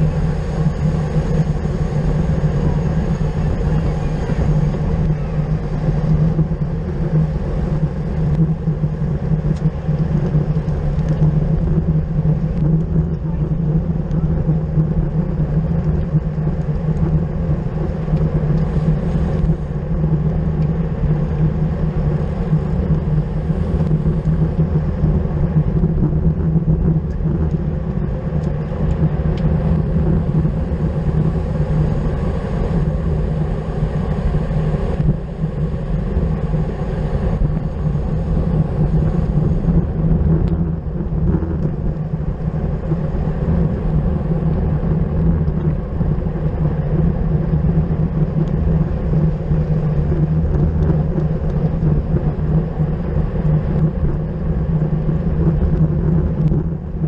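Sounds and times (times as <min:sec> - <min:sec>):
road and tyre noise: 0:00.0 - 0:57.0
wind rushing over microphone: 0:00.0 - 0:57.0.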